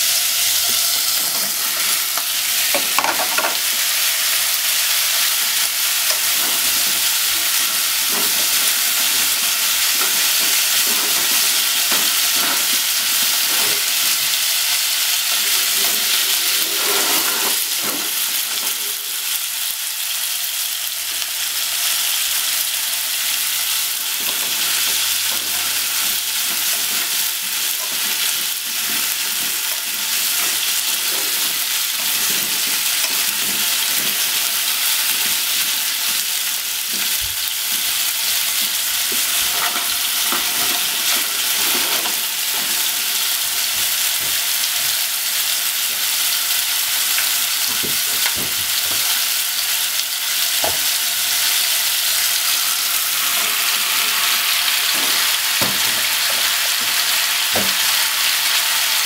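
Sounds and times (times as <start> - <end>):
pork and potatoes sizzling: 0.0 - 59.0
wooden utensils clacking and scraping: 0.5 - 4.4, 15.3 - 19.0, 24.1 - 36.2, 38.5 - 43.0, 52.3 - 57.9.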